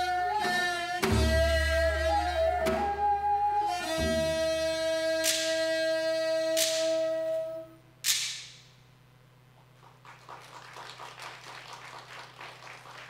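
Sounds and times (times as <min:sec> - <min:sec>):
held wind instrument note: 0:00.0 - 0:07.8
wooden clapper cracks: 0:08.0 - 0:08.7
audience applause: 0:09.8 - 0:13.0.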